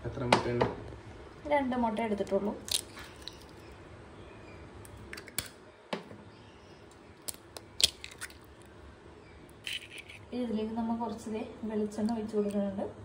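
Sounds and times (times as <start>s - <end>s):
eggshells cracking: 2.2s - 3.7s, 4.9s - 5.6s, 7.2s - 8.8s, 9.5s - 10.3s.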